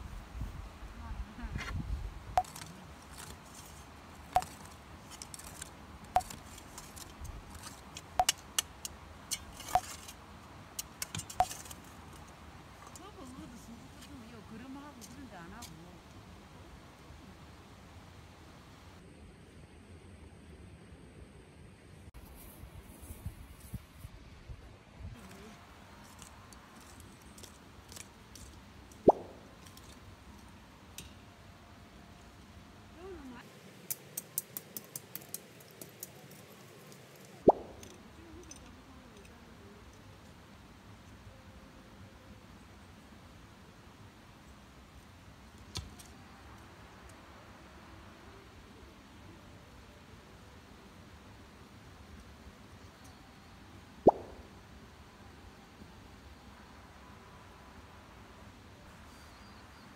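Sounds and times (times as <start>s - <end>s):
clicks and scrapes of hand work: 2.4s - 10.2s, 10.8s - 13.0s
metal tool clinking on stones: 4.3s - 10.2s, 10.8s - 11.8s.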